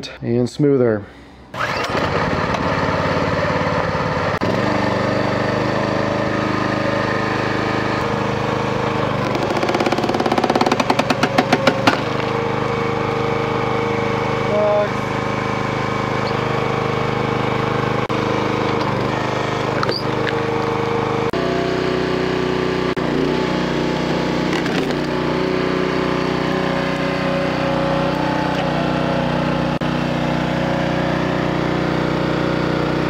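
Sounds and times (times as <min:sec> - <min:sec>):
small engine running: 0:01.5 - 0:33.0
wood cracking and splintering: 0:09.2 - 0:12.5.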